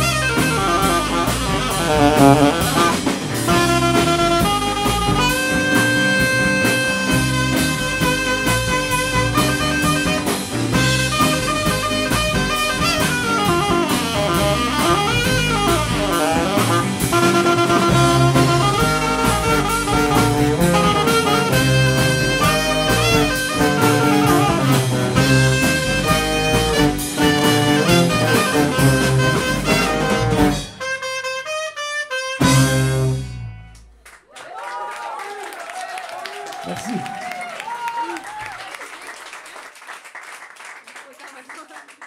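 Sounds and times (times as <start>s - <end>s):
drum kit steady beat: 0.0s - 31.0s
saxophone: 0.0s - 33.6s
trombone: 0.0s - 33.6s
guitar: 0.0s - 33.8s.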